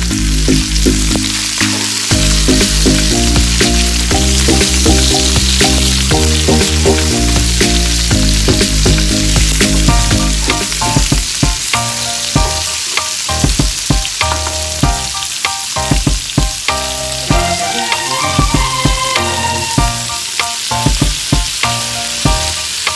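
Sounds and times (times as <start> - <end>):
background music: 0.0 - 22.9
food sizzling in a wok: 0.0 - 22.9.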